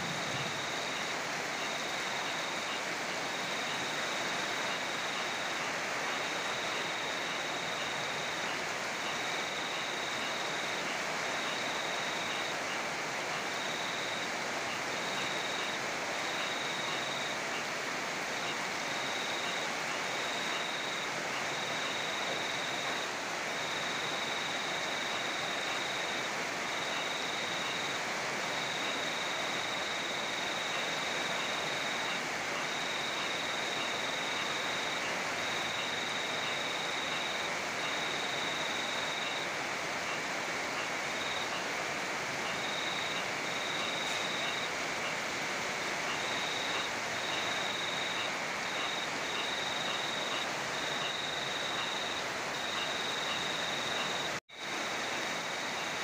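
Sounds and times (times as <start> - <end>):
steady rain falling: 0.0 - 56.0
cricket trilling: 13.5 - 17.7, 18.4 - 39.5, 40.1 - 41.7, 42.4 - 45.3, 46.0 - 56.0.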